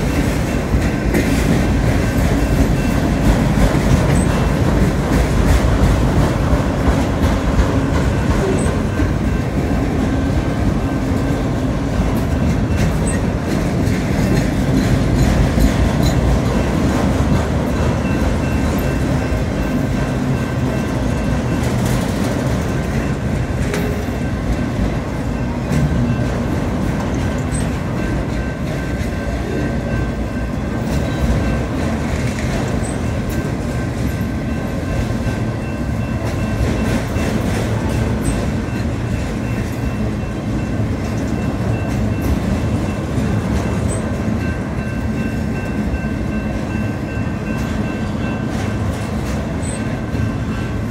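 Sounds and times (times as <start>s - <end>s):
train wheels rumbling on rail: 0.0s - 50.9s
wheels clacking at rail joints: 0.0s - 50.9s.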